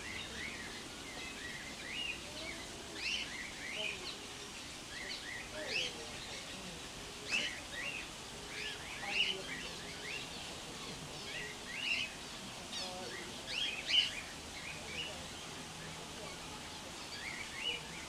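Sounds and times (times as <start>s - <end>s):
small birds chirping: 0.0s - 18.0s
steady background hiss: 0.0s - 18.0s.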